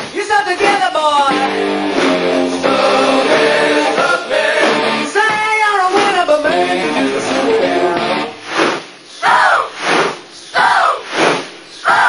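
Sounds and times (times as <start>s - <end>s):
rock band playing loudly: 1.3s - 5.2s
male lead singer singing: 5.0s - 8.0s.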